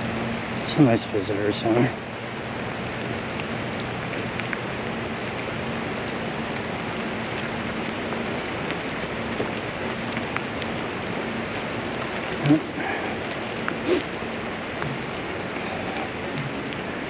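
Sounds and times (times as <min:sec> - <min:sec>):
steady rushing noise: 0:00.0 - 0:17.0
faint ticks: 0:09.4 - 0:10.7.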